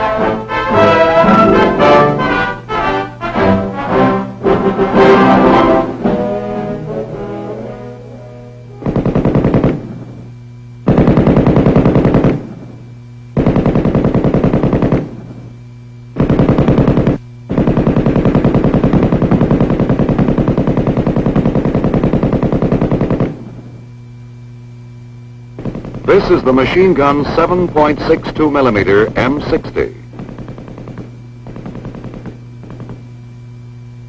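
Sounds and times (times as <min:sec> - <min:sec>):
brass music: 0:00.0 - 0:09.0
steady low hum: 0:00.0 - 0:34.0
machine gun firing bursts: 0:08.8 - 0:10.2, 0:10.8 - 0:12.8, 0:13.4 - 0:15.4, 0:16.2 - 0:23.7, 0:25.6 - 0:33.2.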